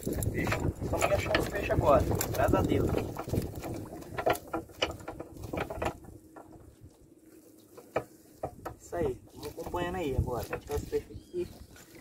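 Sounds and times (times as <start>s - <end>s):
net taps against wooden boat: 7.6s - 9.8s.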